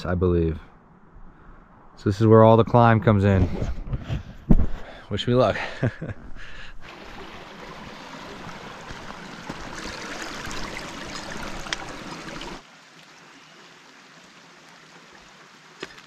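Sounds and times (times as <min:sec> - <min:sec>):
water running over rocks: 0:06.8 - 0:16.0.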